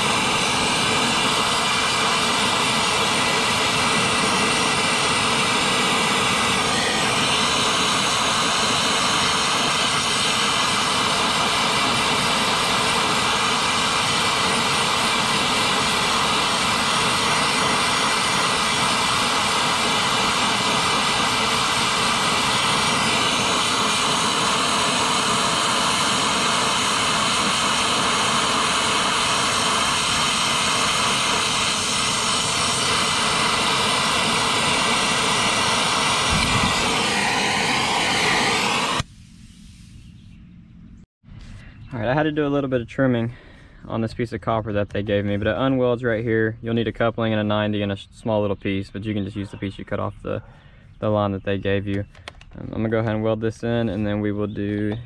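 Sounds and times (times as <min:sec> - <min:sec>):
brazing torch flame rushing: 0:00.0 - 0:40.0.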